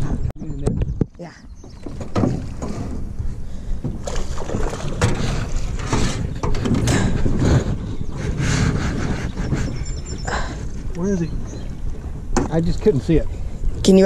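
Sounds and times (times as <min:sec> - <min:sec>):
knocks and scuffs in metal boat: 0:01.6 - 0:03.2, 0:03.8 - 0:07.8, 0:12.3 - 0:12.6.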